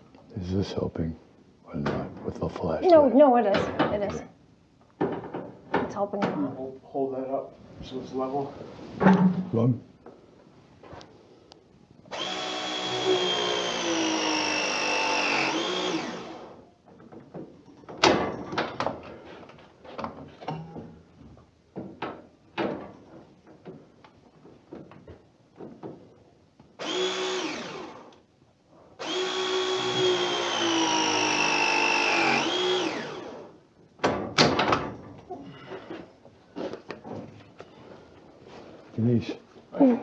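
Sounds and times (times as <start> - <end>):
pipe press motor whine: 12.1 - 16.6, 29.0 - 33.5.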